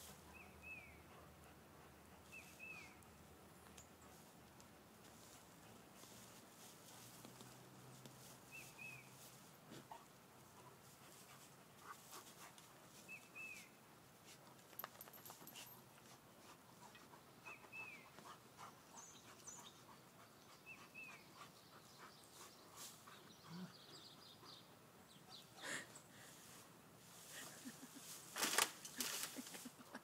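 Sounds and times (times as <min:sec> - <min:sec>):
dogs digging in soil and leaves: 0:02.2 - 0:17.0.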